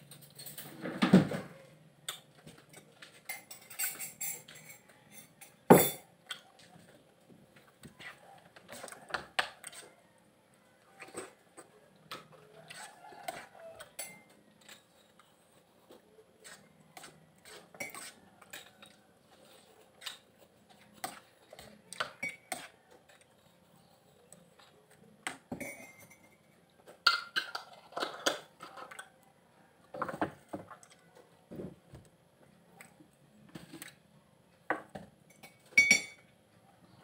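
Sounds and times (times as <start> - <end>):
metal spoon scraping ceramic bowl: 16.4 - 20.2.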